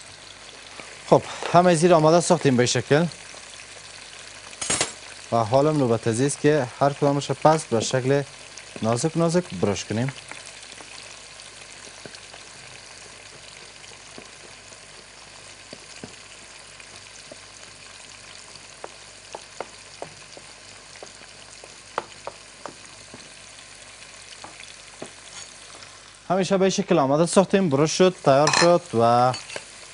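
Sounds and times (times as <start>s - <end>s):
oil sizzling in a pot: 0.0s - 29.9s
knife tapping on cutting board: 21.9s - 22.8s.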